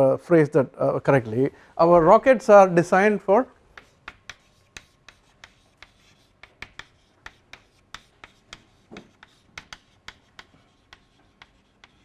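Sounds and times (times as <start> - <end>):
chalk tapping and scratching: 3.7 - 12.0.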